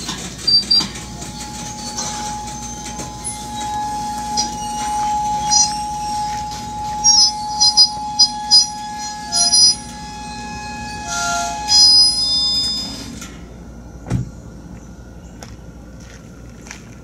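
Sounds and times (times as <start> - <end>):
train brakes squealing: 0.0 - 13.4.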